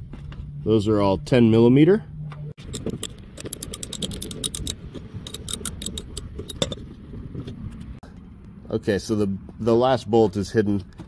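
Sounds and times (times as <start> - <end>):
socket ratchet clicking: 2.6 - 6.8.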